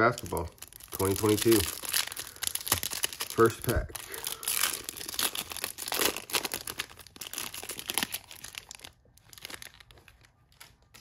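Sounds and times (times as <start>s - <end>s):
foil wrapper crinkling: 0.0s - 11.0s.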